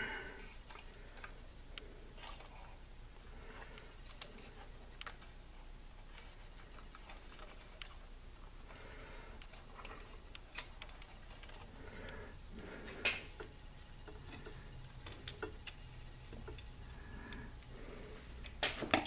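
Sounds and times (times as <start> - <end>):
low steady hum: 0.0 - 19.0
wires clicking in metal chassis: 9.4 - 11.7, 12.9 - 17.7.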